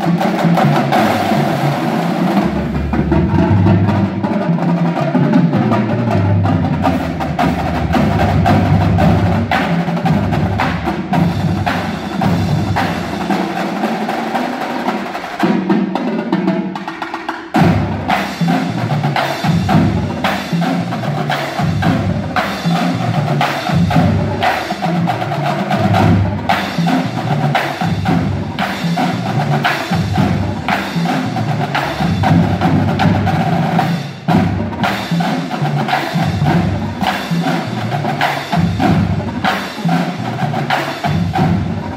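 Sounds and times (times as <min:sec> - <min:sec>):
snare drums: 0:00.0 - 0:41.9
tenor drums: 0:00.0 - 0:41.9
pitched bass drums: 0:06.4 - 0:13.6.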